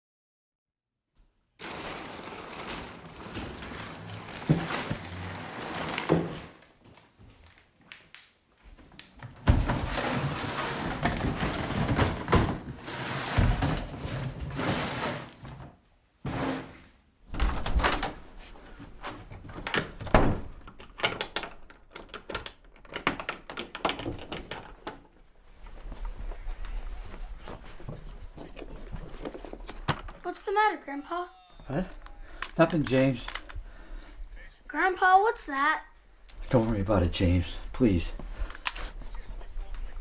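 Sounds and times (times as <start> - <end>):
door thuds and knocks: 19.9 - 20.6.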